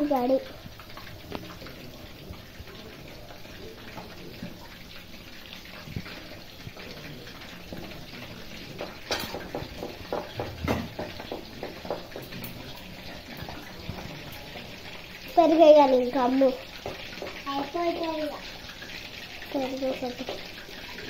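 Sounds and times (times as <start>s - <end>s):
food deep-frying in hot oil: 0.0s - 21.0s
oil crackling and popping: 0.0s - 21.0s.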